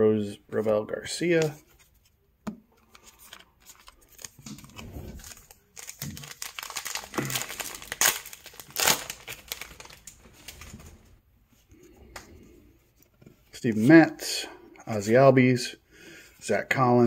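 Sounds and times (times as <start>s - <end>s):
wrapper crinkling and tearing: 3.1s - 10.9s.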